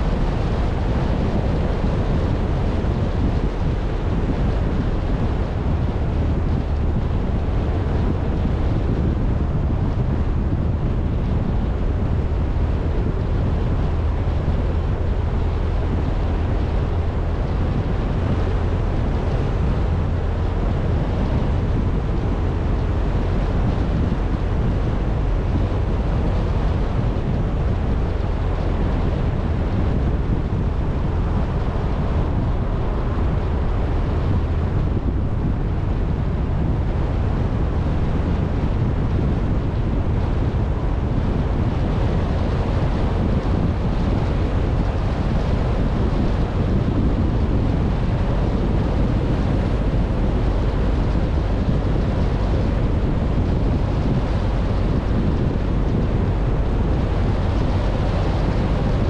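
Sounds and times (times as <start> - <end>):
car road noise: 0.0 - 59.0
wind rumbling on microphone: 0.0 - 59.0.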